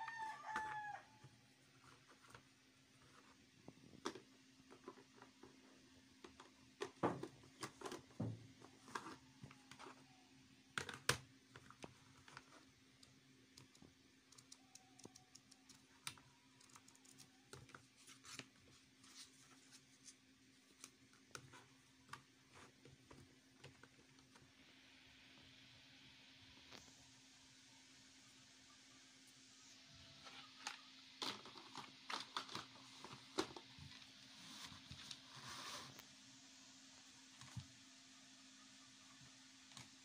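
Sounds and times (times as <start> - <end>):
faint steady hum: 0.0 - 40.0
plastic sleeves clicking and rustling: 30.5 - 34.0.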